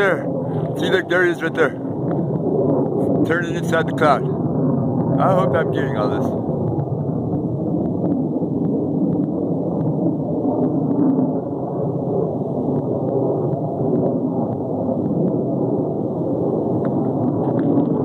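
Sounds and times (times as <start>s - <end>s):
fighter jet engine rumble: 0.0s - 18.0s.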